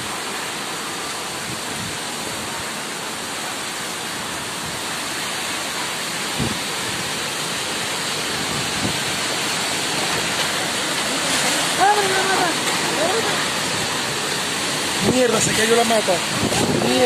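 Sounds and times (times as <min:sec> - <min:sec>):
heavy rain: 0:00.0 - 0:17.0.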